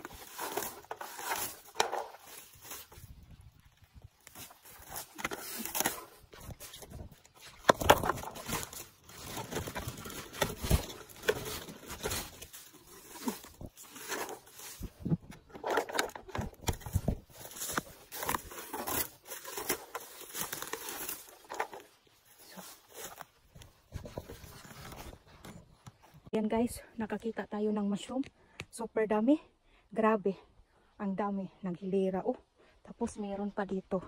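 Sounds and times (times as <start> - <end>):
leaves and twigs rustling: 0.0 - 26.2.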